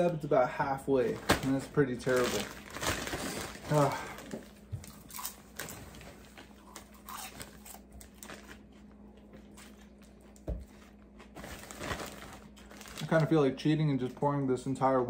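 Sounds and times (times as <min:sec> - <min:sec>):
plastic bag crinkling: 0:00.9 - 0:08.7, 0:11.3 - 0:14.2
popcorn crunching being chewed: 0:02.0 - 0:13.3.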